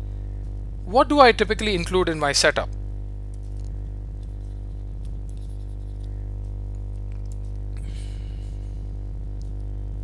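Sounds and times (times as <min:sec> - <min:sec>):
electrical hum with buzz: 0:00.0 - 0:10.0
faint small clicks: 0:05.0 - 0:07.8, 0:09.4 - 0:09.7.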